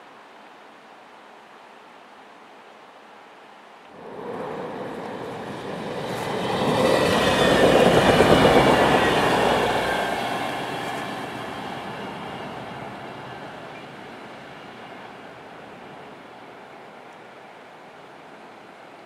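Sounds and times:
train passing at speed: 4.0 - 19.0.

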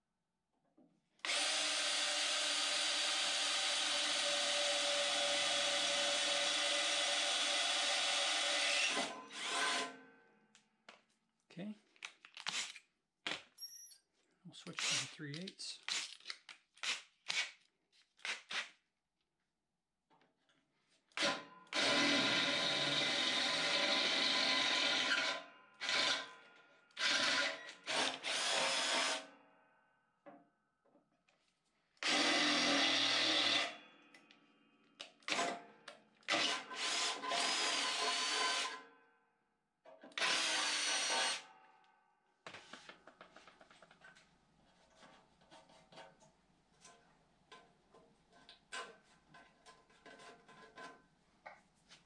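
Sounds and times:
drill boring into steel: 1.2 - 9.9, 14.8 - 15.2, 21.2 - 26.3, 27.0 - 29.3, 32.0 - 33.8, 36.3 - 38.8, 40.2 - 41.5.

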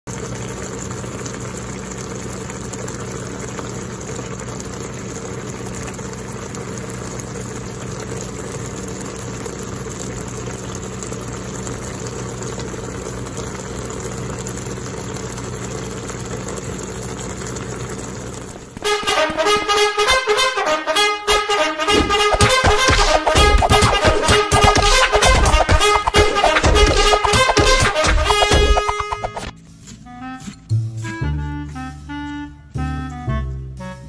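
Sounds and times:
food simmering in a frying pan: 0.1 - 19.8.

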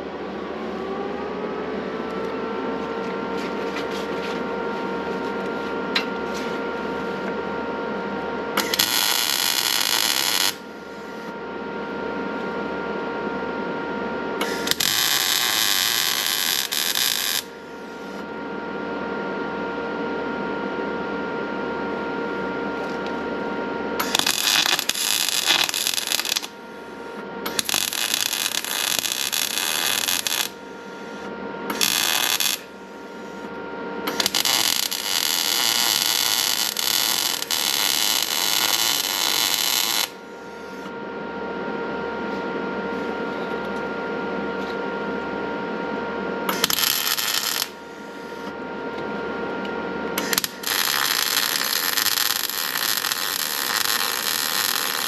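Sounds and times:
steady hum: 0.0 - 55.0
arc welding crackling: 8.6 - 10.6, 14.4 - 17.5, 24.0 - 26.5, 27.5 - 30.6, 31.7 - 32.8, 34.1 - 40.2, 46.5 - 47.8, 50.2 - 55.0.

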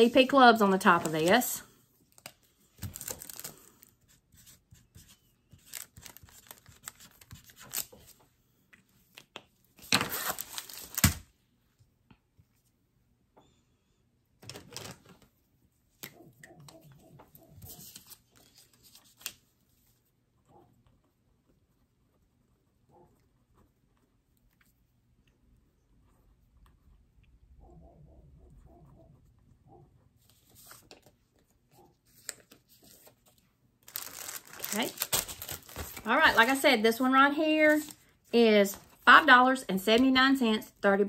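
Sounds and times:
plastic packaging rustling: 2.1 - 4.0, 5.6 - 8.2, 9.8 - 11.3, 14.4 - 15.3, 32.1 - 36.6.

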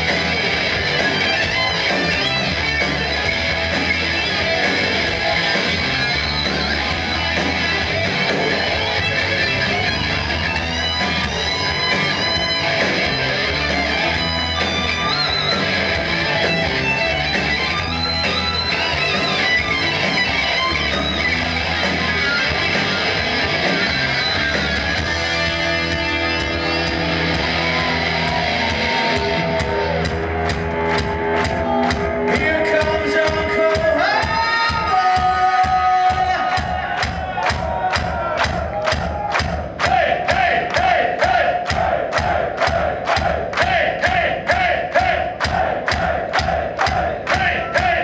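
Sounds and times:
electric guitar solo: 0.0 - 33.6
live rock band playing: 0.0 - 39.8.

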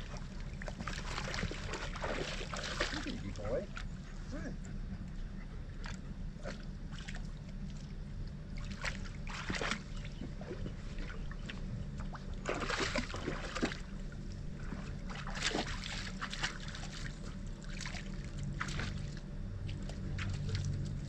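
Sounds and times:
low rumble: 0.0 - 21.0
dog splashing in water: 0.6 - 3.3, 8.6 - 10.6, 12.4 - 13.9, 14.7 - 20.9.

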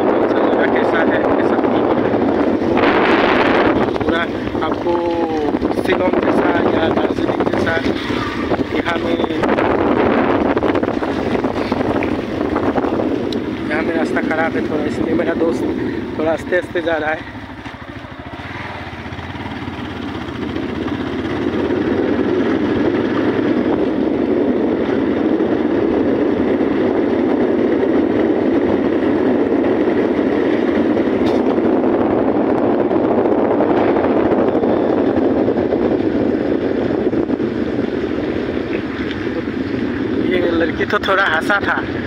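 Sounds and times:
motorcycle engine: 0.0 - 42.0
wind noise on microphone: 0.0 - 42.0
tyres on wet road: 1.2 - 32.0, 33.6 - 42.0.

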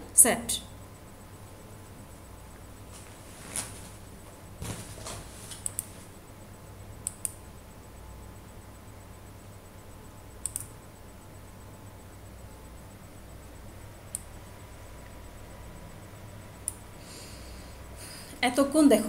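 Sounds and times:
low steady hum: 0.0 - 19.0
computer mouse clicking: 5.6 - 5.9, 7.0 - 7.4, 10.4 - 10.8, 14.1 - 14.3.

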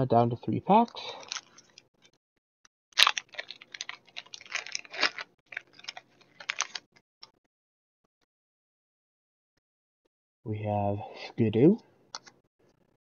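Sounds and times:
foil wrapper crinkling: 1.1 - 1.8, 3.0 - 7.0
foil pack ripping open: 3.0 - 6.9.

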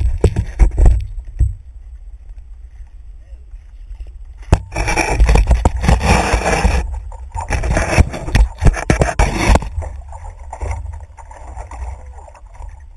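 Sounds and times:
knocks and scrapes on board: 0.0 - 1.0, 4.5 - 9.9
water splashing and lapping: 3.9 - 12.9.

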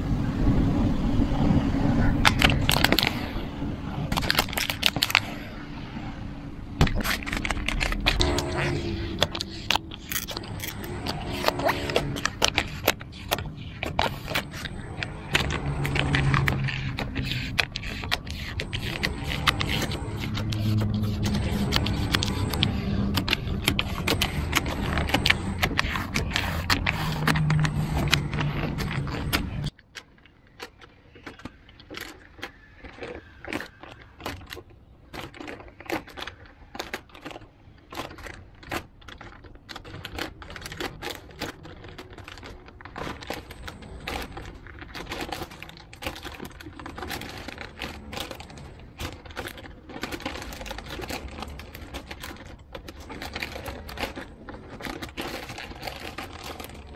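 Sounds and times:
low hum: 0.0 - 29.7
sticker peeling crackles: 2.0 - 56.9.

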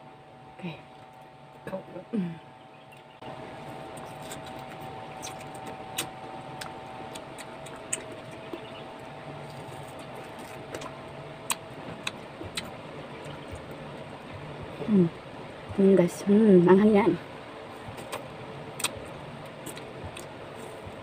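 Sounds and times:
steady motor hum: 0.0 - 21.0.

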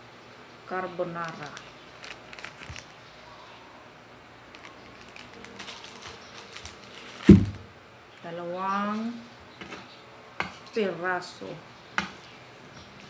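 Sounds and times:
heavy thump on a table: 7.3 - 7.6.

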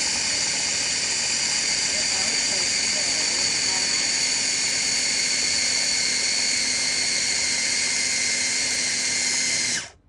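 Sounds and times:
food chopper motor whining: 0.0 - 10.0.

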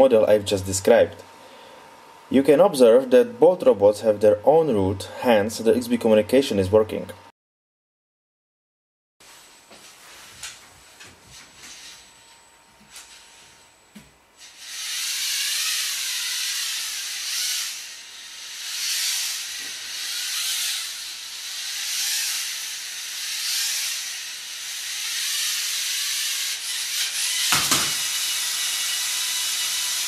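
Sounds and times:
faint wavering whine: 9.2 - 14.2
servo motors whirring: 14.4 - 30.0
knock: 27.5 - 28.0.

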